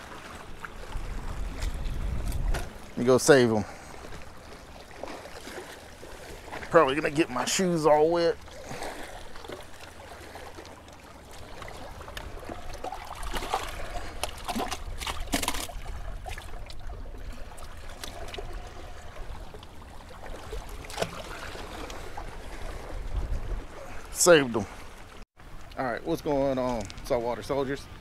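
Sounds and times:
wind rumbling on microphone: 0.0 - 4.5, 11.5 - 24.1
water lapping among rocks: 0.0 - 25.7
short sharp splashes: 20.1 - 23.0.

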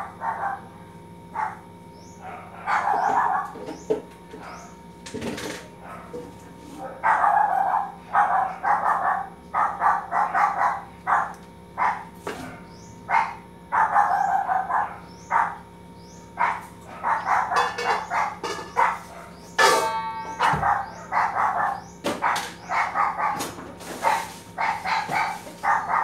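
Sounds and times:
dog barking: 0.0 - 3.8, 5.8 - 15.7, 16.3 - 26.0
dishes clinking: 17.5 - 18.9, 19.6 - 20.8.

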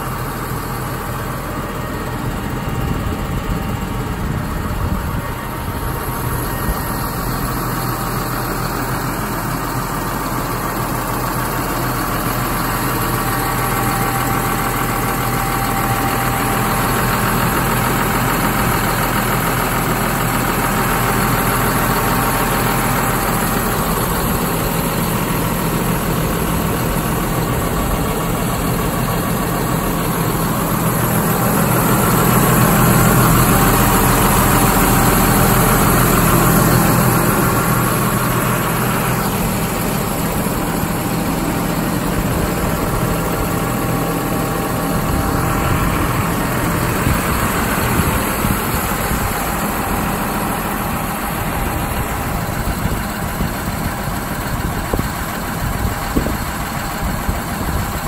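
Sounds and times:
tractor diesel engine idling: 0.0 - 58.0.

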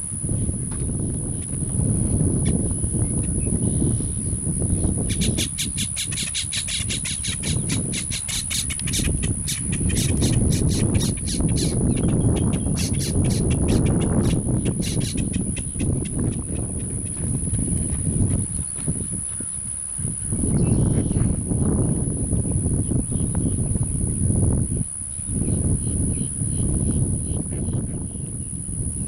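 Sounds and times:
steady low rumble: 0.0 - 29.0
grackles calling: 5.1 - 17.2.

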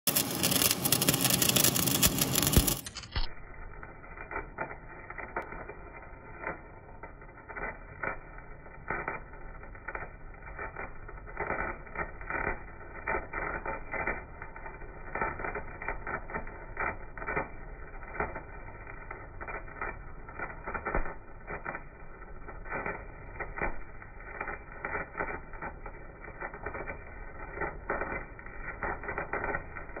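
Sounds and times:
welding arc crackling and hissing: 0.0 - 30.0
sharp pops: 0.1 - 3.3.

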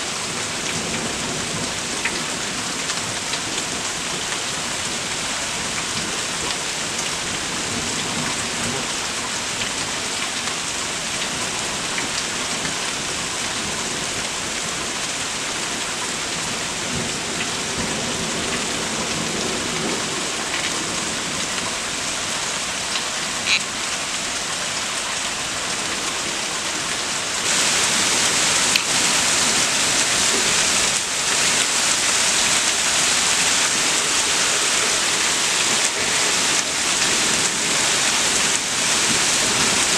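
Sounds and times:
heavy rain falling: 0.0 - 39.9.

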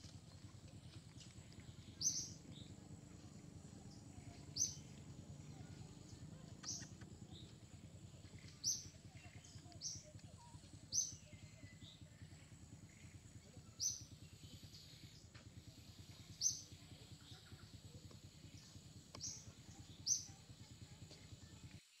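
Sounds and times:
low background hum: 0.0 - 22.0
bird chirping: 0.2 - 21.6.

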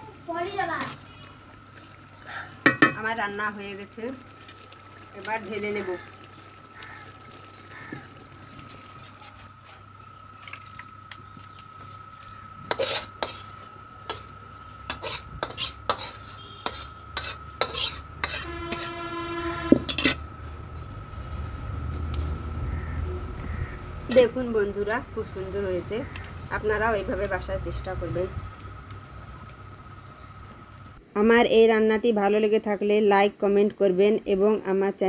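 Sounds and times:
metal spatula scraping pot: 12.7 - 14.3, 14.9 - 20.2.

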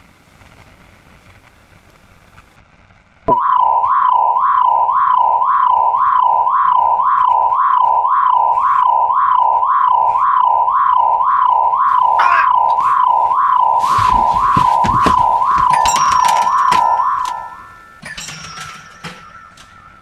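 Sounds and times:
warbling electronic tone: 3.3 - 18.0.

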